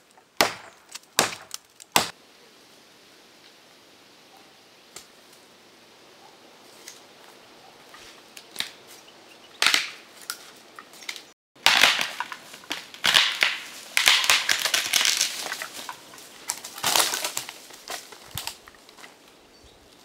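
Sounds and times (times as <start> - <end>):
dry wood cracking and splintering: 0.0 - 2.1, 9.6 - 19.4.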